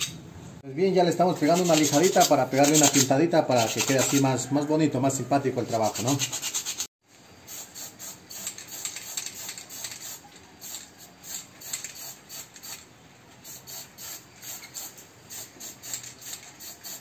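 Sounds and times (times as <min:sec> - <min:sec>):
spray paint can hissing: 0:07.4 - 0:12.8, 0:13.4 - 0:17.0.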